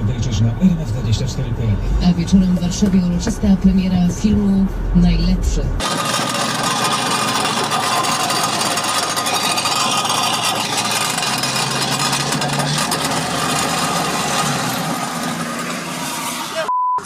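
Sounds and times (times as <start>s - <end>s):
car engine: 0.0s - 16.7s
wheel rim grinding on road: 5.8s - 16.7s.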